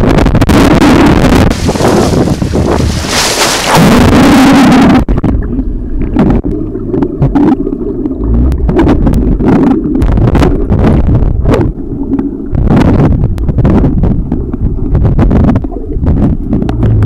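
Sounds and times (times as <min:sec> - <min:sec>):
muffled underwater rumble: 0:00.0 - 0:17.0
underwater clicks and bubble pops: 0:00.6 - 0:17.0
water spray and splashing: 0:01.5 - 0:04.3.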